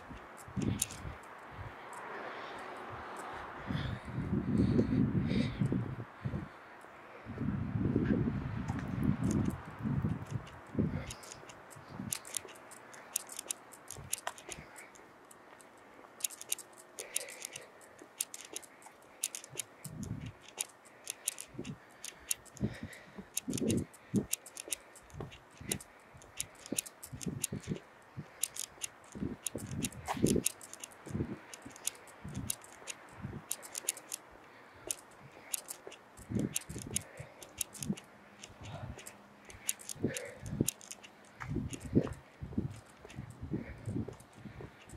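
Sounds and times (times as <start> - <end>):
footsteps on concrete: 8.7 - 34.2, 34.8 - 44.9.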